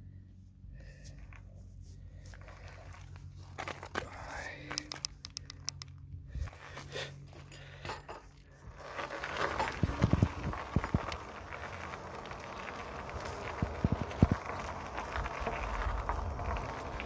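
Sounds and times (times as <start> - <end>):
scattered clicks: 4.7 - 6.0
wind and tyre noise on asphalt: 8.4 - 17.0.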